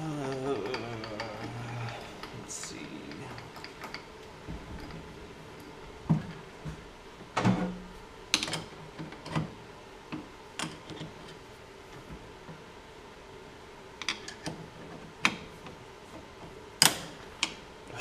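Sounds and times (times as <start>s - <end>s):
wrench clinking on steel nut: 0.3s - 4.1s.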